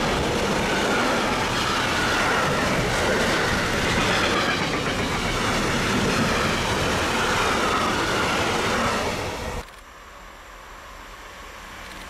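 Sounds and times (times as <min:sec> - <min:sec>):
steel wheels rushing on rail: 0:00.0 - 0:09.6.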